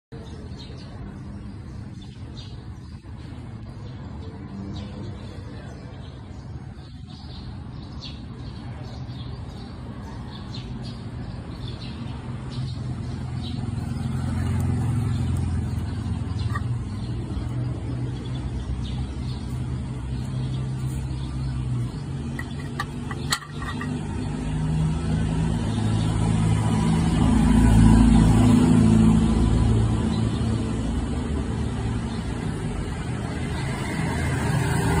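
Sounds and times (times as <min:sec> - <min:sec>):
vehicle engine running: 0:12.8 - 0:25.3.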